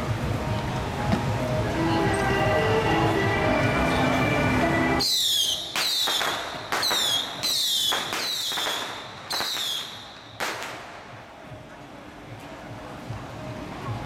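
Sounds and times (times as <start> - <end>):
whistles falling in pitch: 5.0 - 10.3
firecracker bangs: 5.0 - 11.2.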